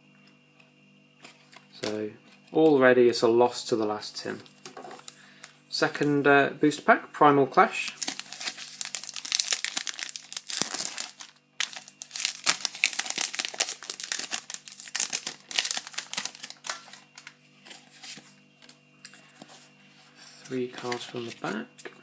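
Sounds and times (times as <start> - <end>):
foil wrapper tearing and crinkling: 7.9 - 17.4
cards rustling: 7.9 - 18.8.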